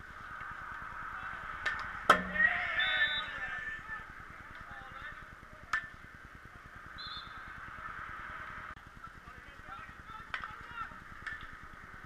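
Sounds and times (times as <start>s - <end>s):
players calling and shouting: 0.2s - 11.9s
stick hitting ball: 1.6s - 2.5s.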